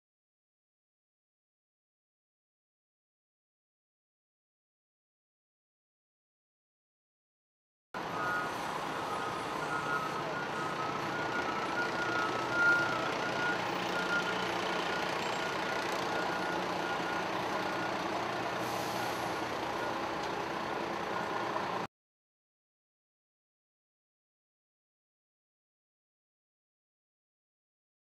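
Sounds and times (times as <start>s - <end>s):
diesel engine running: 8.0s - 21.9s.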